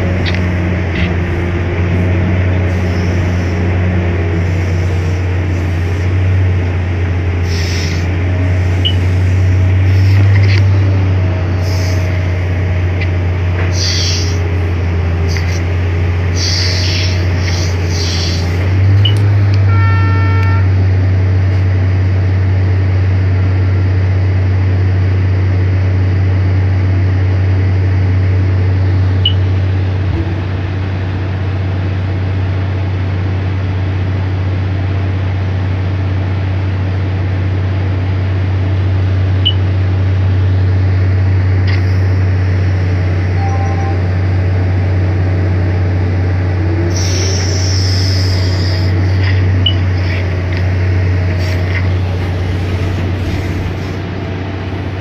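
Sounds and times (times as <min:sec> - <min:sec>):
diesel engine running: 0:00.0 - 0:55.0
short pitched beep: 0:43.4 - 0:44.1.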